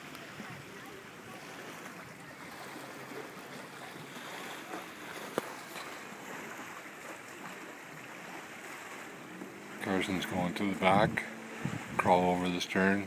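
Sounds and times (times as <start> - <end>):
small waves washing: 0.0 - 13.0
wind on microphone: 9.8 - 13.0.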